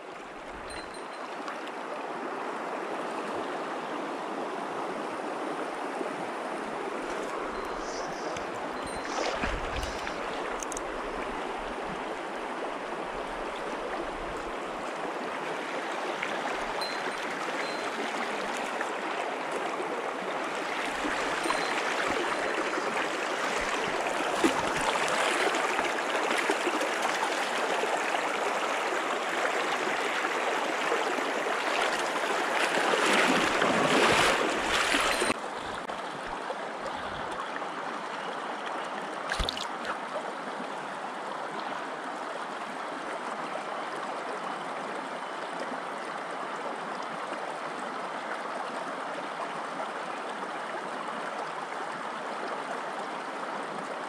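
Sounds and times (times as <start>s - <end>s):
stream rushing over stones: 0.0s - 43.2s.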